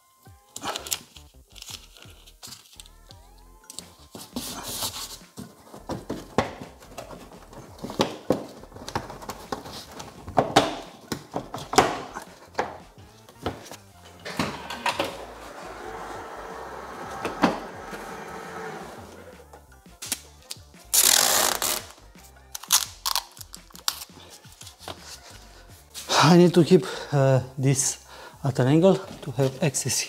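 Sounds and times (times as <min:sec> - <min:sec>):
rustling and handling: 0:00.6 - 0:03.0, 0:03.7 - 0:17.2.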